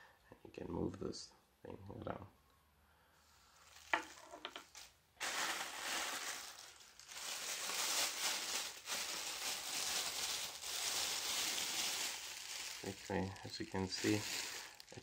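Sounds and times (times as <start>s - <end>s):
plastic packaging crinkling: 3.6s - 15.0s.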